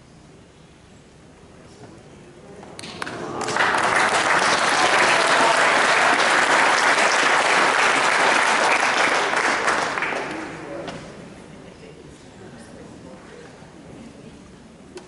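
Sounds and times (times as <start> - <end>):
spectators applauding: 2.8 - 10.7.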